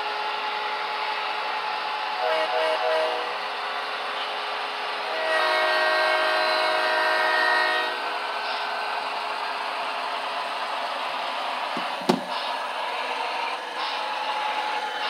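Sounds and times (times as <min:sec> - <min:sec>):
model train running noise: 0:00.0 - 0:15.0
multi-chime train horn: 0:02.2 - 0:03.4, 0:05.0 - 0:08.1.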